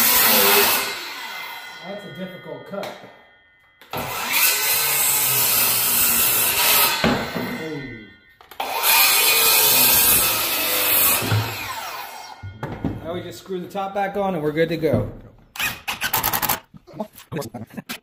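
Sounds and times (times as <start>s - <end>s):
circular saw cutting wood: 0.0s - 3.2s, 3.8s - 12.5s
saw blade winding down whine: 0.0s - 12.5s.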